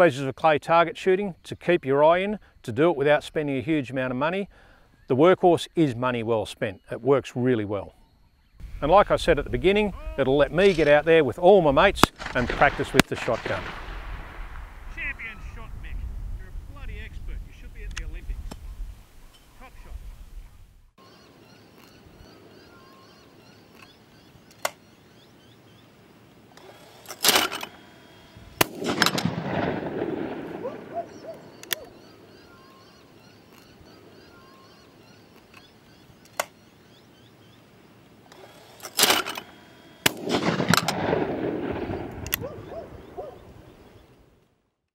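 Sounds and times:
shotgun shot echoing: 11.8s - 15.5s, 26.7s - 32.1s, 38.9s - 43.4s
faint bird chirps: 18.7s - 27.0s, 30.6s - 38.8s.

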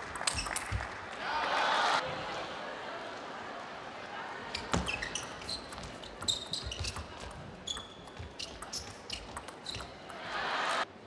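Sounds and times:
shoe squeaks on floor: 4.6s - 10.0s
ping pong ball clicking: 5.2s - 10.2s.

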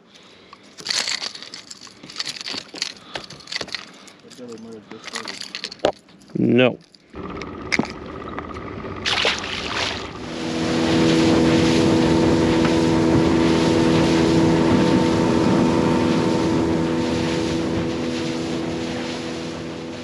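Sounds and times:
wind: 0.0s - 20.0s
boat motor running: 7.2s - 20.0s
water rushing: 9.0s - 20.0s.

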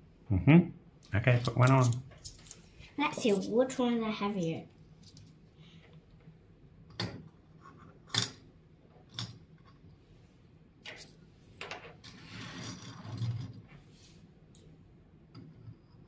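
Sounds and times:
metal washers clinking on plastic: 1.4s - 2.6s.

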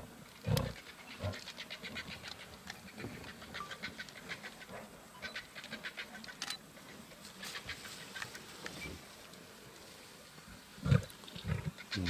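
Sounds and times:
lion grunting: 10.8s - 12.0s.

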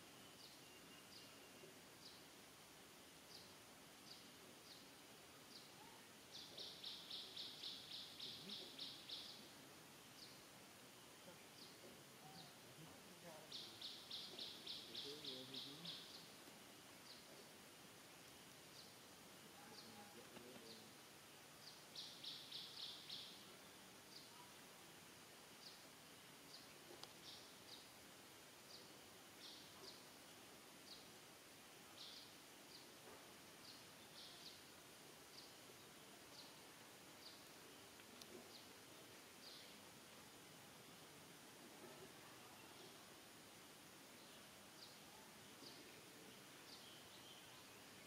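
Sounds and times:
faint high chirps: 0.0s - 2.2s.

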